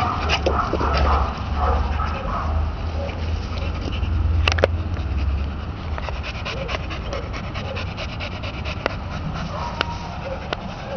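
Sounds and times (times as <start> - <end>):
dog panting: 0.0 - 10.9.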